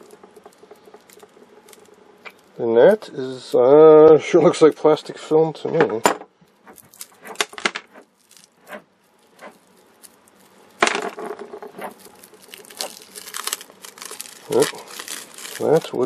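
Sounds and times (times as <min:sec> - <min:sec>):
plastic film crinkling: 0:00.0 - 0:03.0, 0:06.5 - 0:16.0.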